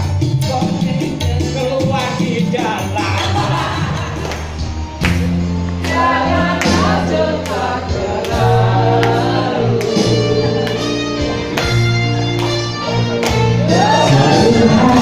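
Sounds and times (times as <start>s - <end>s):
amplified backing music: 0.0s - 15.0s
person singing into microphone: 13.6s - 15.0s.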